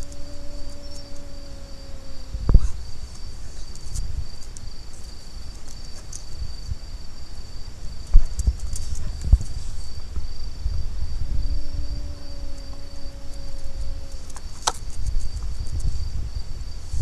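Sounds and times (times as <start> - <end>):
insect trilling: 0.0 - 4.4, 10.9 - 15.4.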